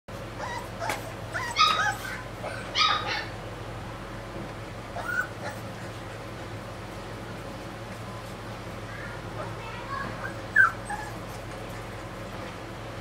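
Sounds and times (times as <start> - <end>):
puppy whimpering and yelping: 0.4 - 3.4, 4.9 - 5.8, 10.2 - 11.9.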